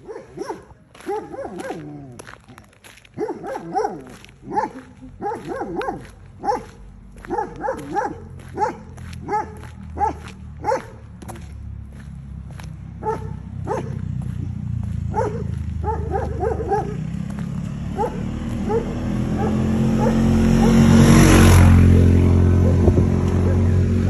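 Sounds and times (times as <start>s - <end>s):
dog barking: 0.0s - 2.2s, 3.1s - 11.4s, 13.0s - 21.0s, 21.8s - 23.9s.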